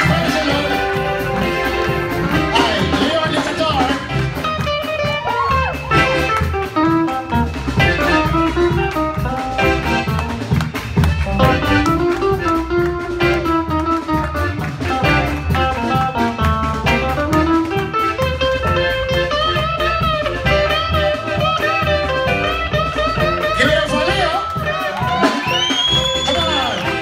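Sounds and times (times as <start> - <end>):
drum kit: 0.0 - 27.0
electric guitar: 0.0 - 27.0.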